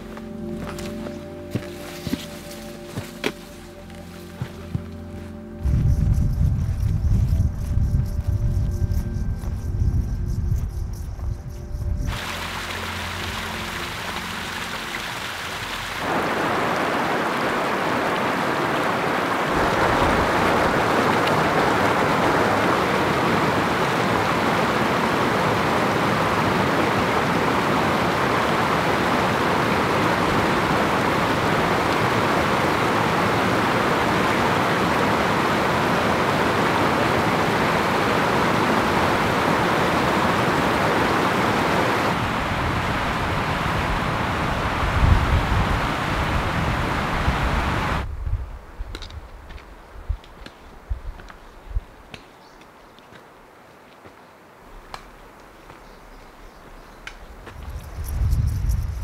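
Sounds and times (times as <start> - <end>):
water splashing over rock: 12.1 - 42.2
stream rushing over stones: 12.1 - 48.1.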